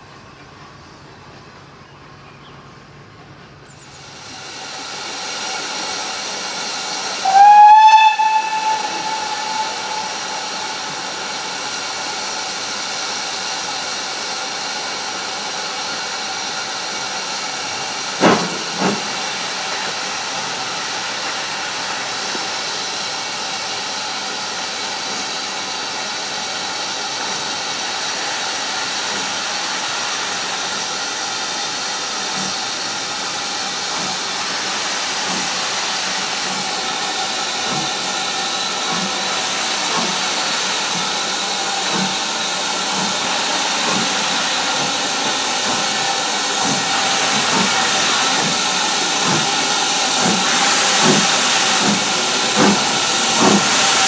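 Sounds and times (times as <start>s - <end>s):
steam hissing: 3.8s - 54.0s
steam whistle blast: 7.2s - 11.7s.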